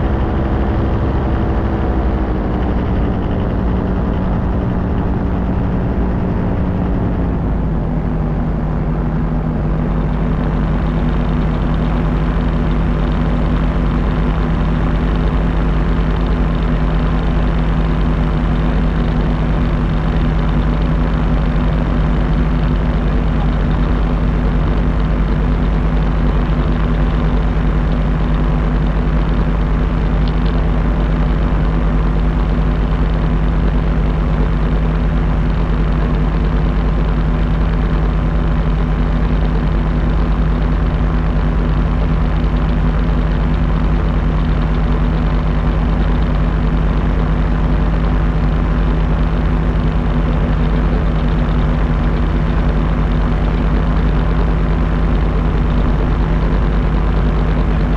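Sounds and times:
propeller engine droning: 0.0 - 57.9.

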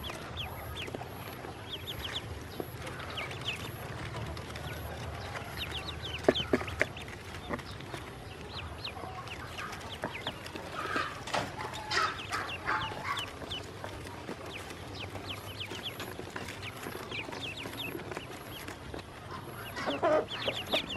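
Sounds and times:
ducklings peeping: 0.0 - 20.9
louder lower duckling calls: 10.7 - 13.6.

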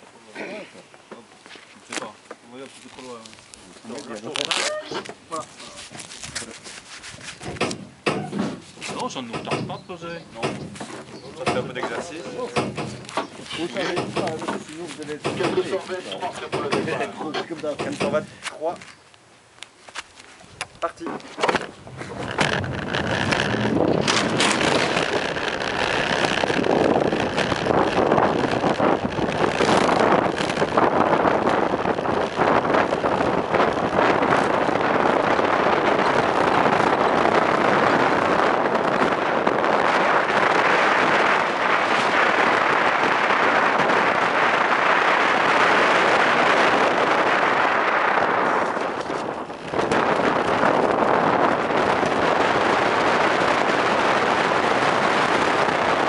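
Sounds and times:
wind over microphone: 2.9 - 19.0, 20.2 - 56.0
knocks from bumps: 7.4 - 18.3
cart wheels rumbling on asphalt: 21.2 - 56.0.

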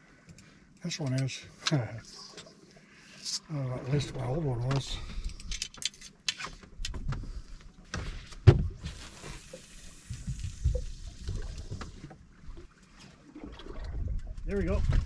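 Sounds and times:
fishing rod clicks and knocks: 4.7 - 7.2.

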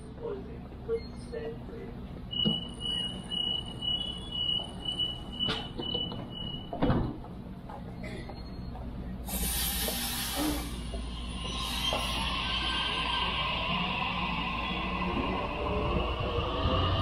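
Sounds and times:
train door warning beeps: 2.3 - 6.9
hissing air: 9.3 - 15.7.

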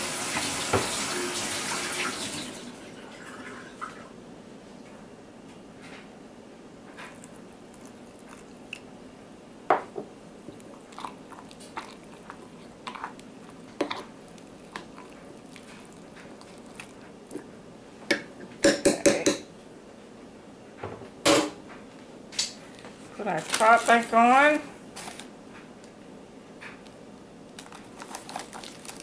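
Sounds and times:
spoon stirring wet starter: 10.6 - 17.5.

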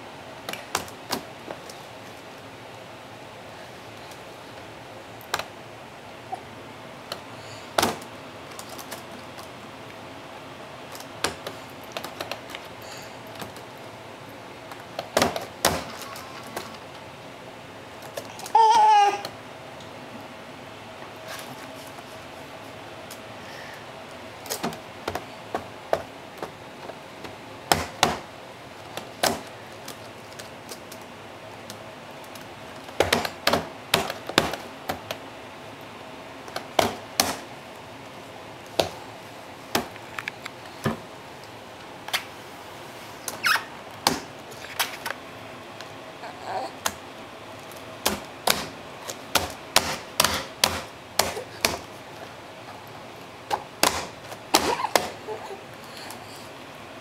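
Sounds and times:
hands banging on laptop keyboard: 32.9 - 35.1, 49.3 - 51.8.

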